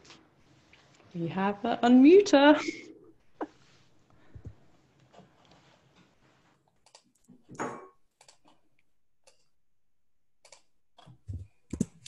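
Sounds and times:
keyboard and mouse clicks: 6.8 - 7.3, 8.2 - 8.6, 10.4 - 10.7.

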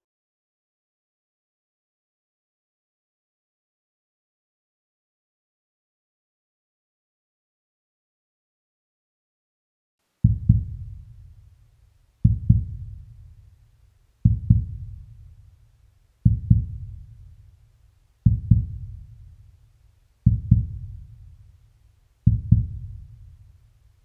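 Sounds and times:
heartbeat thumps: 10.2 - 11.6, 12.2 - 13.6, 14.2 - 15.6, 16.2 - 17.6, 18.2 - 19.6, 20.2 - 21.6, 22.2 - 23.7.

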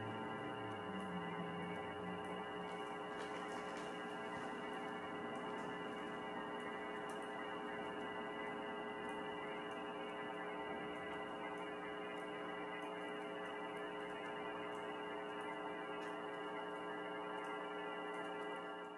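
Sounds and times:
steady hum of sustained tones: 0.0 - 14.2.

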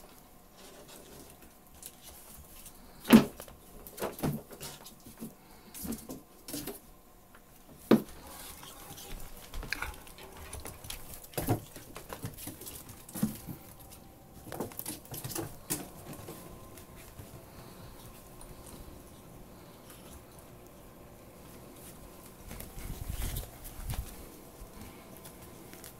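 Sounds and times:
paws pattering on tiled floor: 8.0 - 20.8, 21.4 - 25.9.

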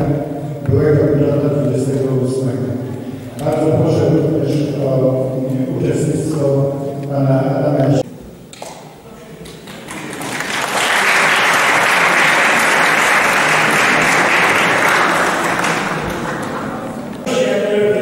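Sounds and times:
audience applauding: 9.5 - 17.2.

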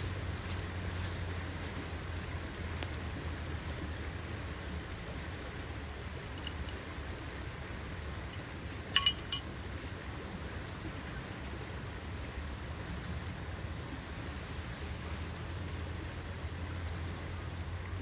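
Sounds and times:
flowing river water: 0.0 - 18.0
wind: 0.0 - 18.0
wind rumble on microphone: 0.0 - 18.0
sharp ringing clicks: 8.3 - 9.5.

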